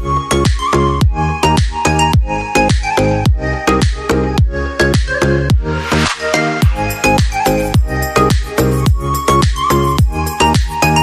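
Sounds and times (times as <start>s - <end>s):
deep kick drums: 0.0s - 5.7s, 6.6s - 10.8s
electronic dance music: 3.8s - 11.0s
synth melody: 5.6s - 10.4s.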